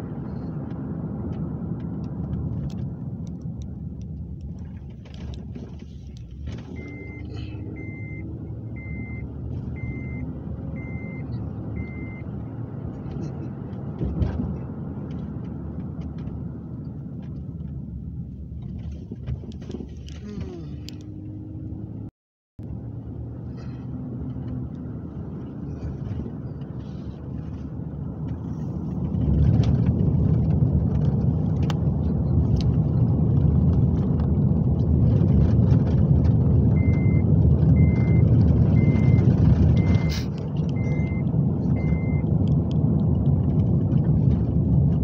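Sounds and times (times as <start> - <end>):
car road and engine noise: 0.0 - 45.0
short electronic beeps: 6.8 - 12.2, 38.8 - 41.2, 41.8 - 42.2.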